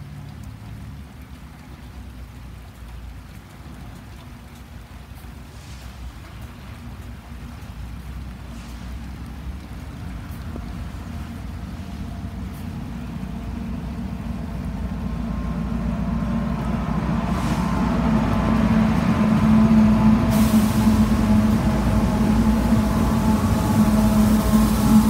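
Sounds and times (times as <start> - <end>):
hiss: 5.5 - 6.2, 8.4 - 9.3, 16.6 - 25.0
locomotive engine drone: 6.3 - 25.0.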